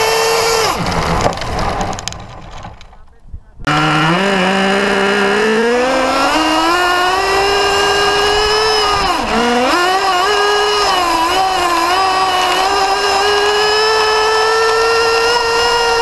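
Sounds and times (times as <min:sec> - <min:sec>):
radio-controlled car motor: 0:03.7 - 0:16.0.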